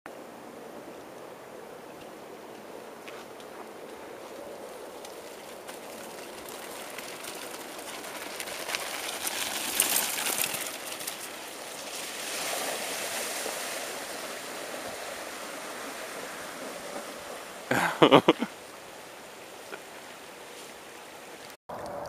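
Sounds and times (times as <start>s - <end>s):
wheels splashing through creek: 0.3s - 22.0s
bike tyres crunching on gravel: 2.6s - 18.4s
running water: 4.7s - 21.6s.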